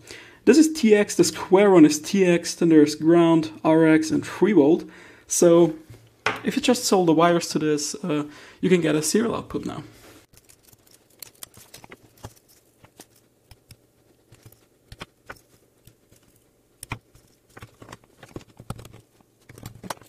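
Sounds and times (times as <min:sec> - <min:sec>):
wires snapping and clicking: 0:10.3 - 0:20.0.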